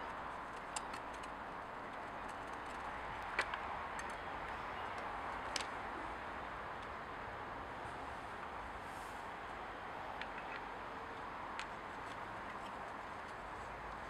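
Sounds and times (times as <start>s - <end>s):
metallic clicks and taps of screwdriver: 0.5s - 1.3s.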